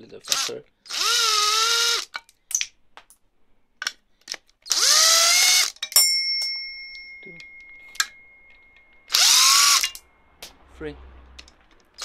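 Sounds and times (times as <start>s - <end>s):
cordless drill motor whining: 0.3s - 2.1s, 4.7s - 5.7s, 9.1s - 9.9s
sharp metallic clink ringing: 5.8s - 10.4s.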